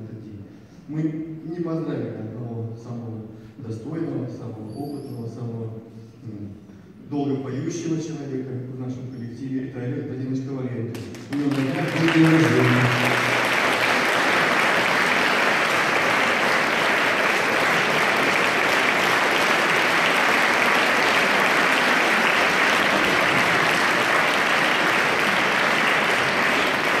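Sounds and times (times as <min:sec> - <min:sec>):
audience applauding: 0:10.9 - 0:27.0.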